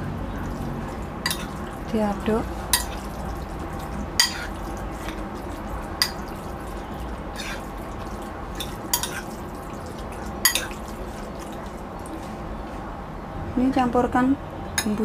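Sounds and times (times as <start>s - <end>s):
wet squelching of stirred meat: 0.0s - 12.7s
steady low hum: 0.0s - 15.0s.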